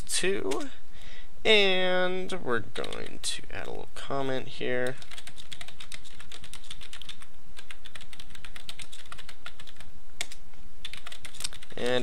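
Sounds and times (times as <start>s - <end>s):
computer keyboard typing: 2.8s - 3.2s, 4.8s - 12.0s.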